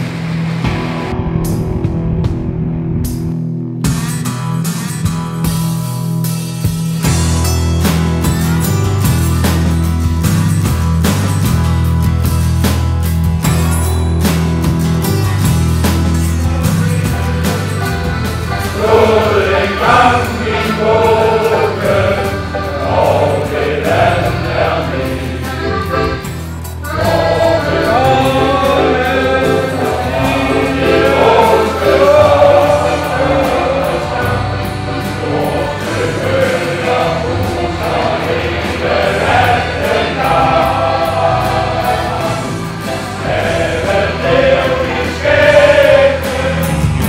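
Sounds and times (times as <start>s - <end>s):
low accompaniment: 0.0s - 4.1s, 14.7s - 47.0s
male choir singing: 16.4s - 26.2s, 26.8s - 47.0s.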